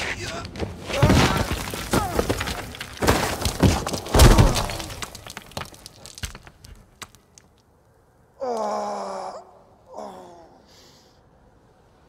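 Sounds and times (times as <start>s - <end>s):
rubble clicking and trickling: 0.2s - 7.7s
heavy crashes of falling chunks: 0.8s - 6.8s
stone cracking and shattering: 0.8s - 7.6s.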